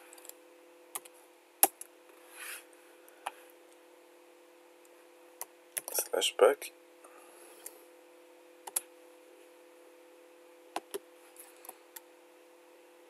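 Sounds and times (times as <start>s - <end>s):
faint steady hum: 0.0s - 13.0s
computer keyboard keystrokes: 8.6s - 8.9s.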